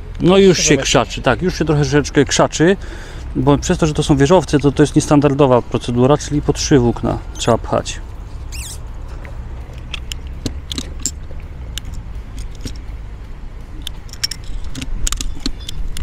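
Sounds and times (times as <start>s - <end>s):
wind rumbling on microphone: 3.4s - 16.0s
light clicks and taps: 9.1s - 13.0s, 13.6s - 16.0s.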